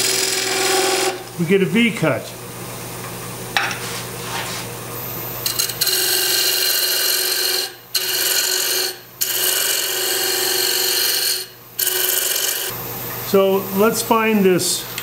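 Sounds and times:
wood lathe running: 0:00.0 - 0:01.3, 0:05.4 - 0:12.7.

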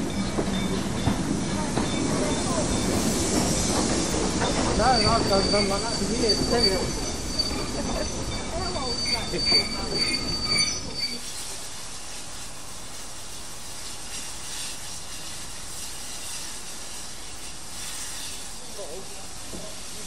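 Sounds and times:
steady hiss: 0:00.0 - 0:20.0
train wheels squealing: 0:00.0 - 0:20.0.

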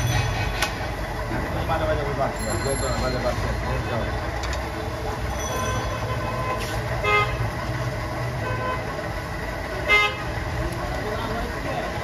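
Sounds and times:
vehicle horn toots: 0:05.6 - 0:07.5, 0:08.4 - 0:08.9, 0:09.8 - 0:10.3.

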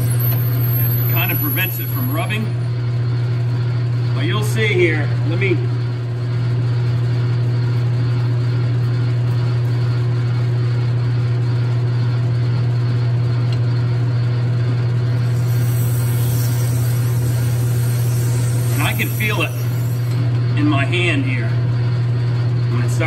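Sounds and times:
drill boring into nylon: 0:15.2 - 0:20.2
high hiss: 0:15.2 - 0:20.3
metal lathe humming: 0:15.2 - 0:20.6.

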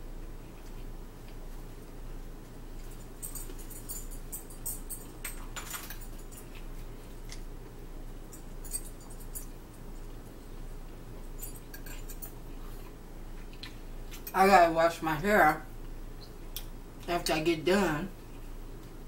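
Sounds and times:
low room hum: 0:00.0 - 0:19.0
chewing: 0:11.5 - 0:14.3.

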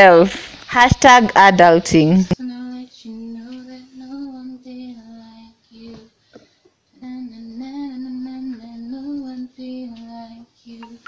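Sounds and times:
woman singing slow melody: 0:02.2 - 0:06.1, 0:06.9 - 0:11.0.

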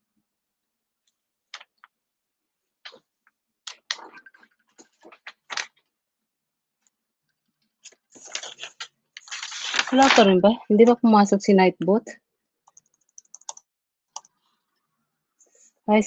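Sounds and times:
keyboard and mouse clicks: 0:12.7 - 0:14.4.

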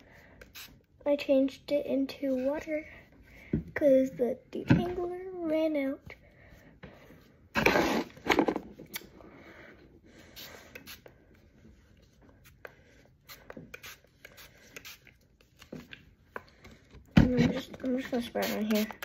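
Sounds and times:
spray bottle rubbing against hair: 0:00.5 - 0:00.8, 0:10.4 - 0:11.0, 0:13.2 - 0:15.2, 0:18.1 - 0:19.0.

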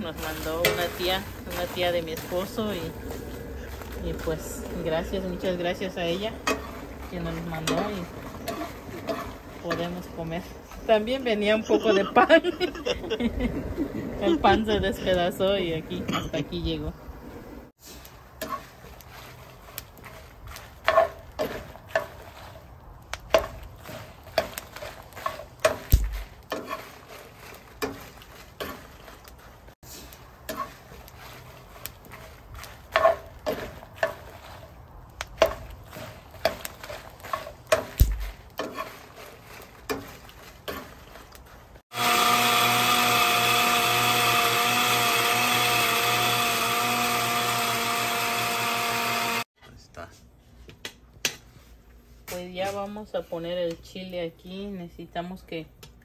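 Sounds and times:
electric motor humming: 0:41.9 - 0:49.5.

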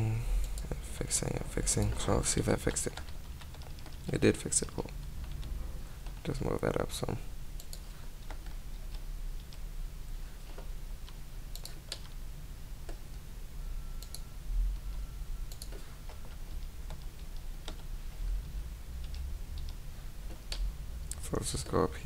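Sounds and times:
steady low hum: 0:00.0 - 0:22.0
mouse and keyboard clicks: 0:15.5 - 0:15.8.

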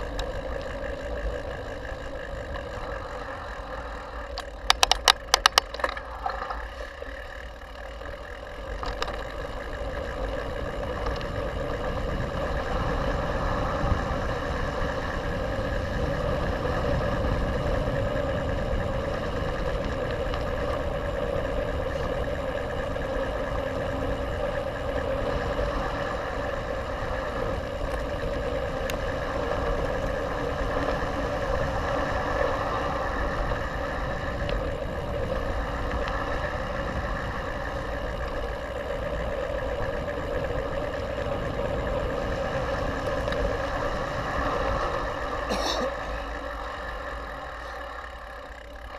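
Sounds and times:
wind and tyre rumble: 0:00.0 - 0:48.9.

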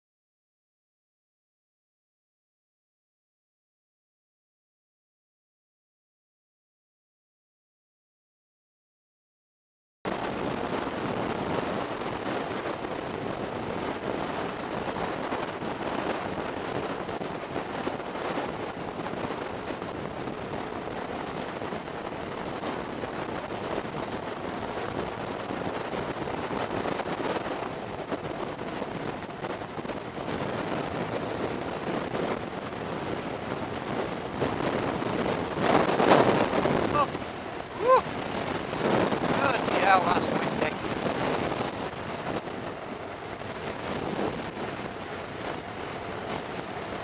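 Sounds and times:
wind rushing on microphone: 0:10.1 - 0:47.0.

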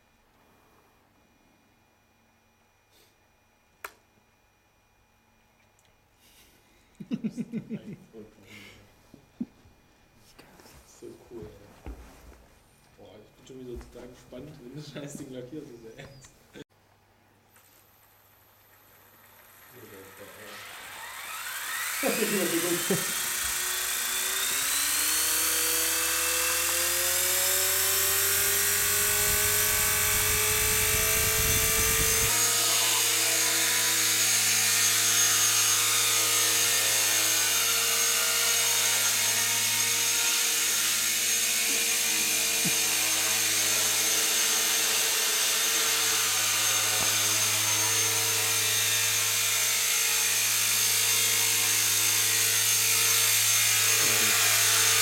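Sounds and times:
rc helicopter motor whine: 0:17.5 - 0:55.0.

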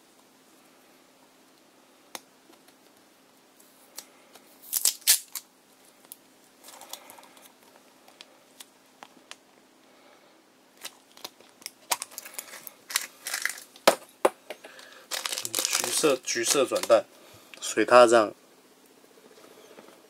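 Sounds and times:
plastic shell rattling: 0:14.7 - 0:17.0.

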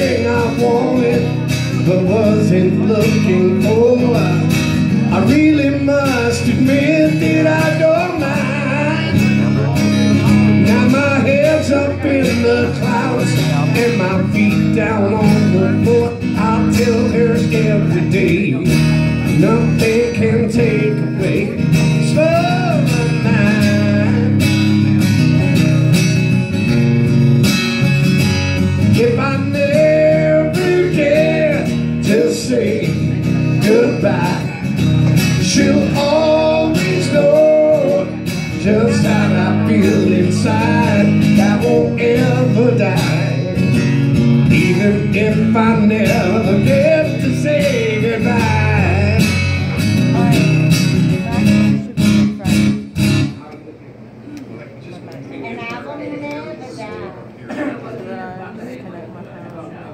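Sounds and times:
man singing: 0:00.0 - 0:24.9, 0:28.3 - 0:50.6
acoustic guitar strumming: 0:00.0 - 0:53.4.

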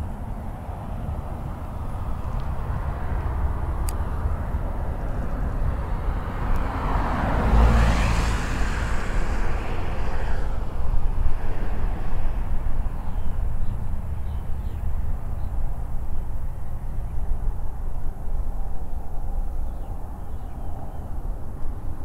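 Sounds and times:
steady low traffic rumble: 0:00.0 - 0:22.0
vehicle passing by: 0:00.8 - 0:15.6.

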